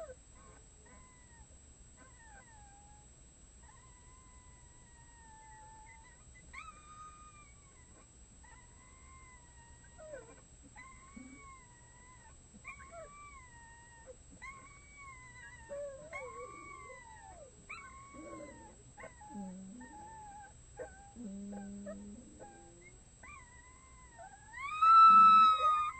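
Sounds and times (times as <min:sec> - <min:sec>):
wolf pups howling: 0:10.1 - 0:25.9.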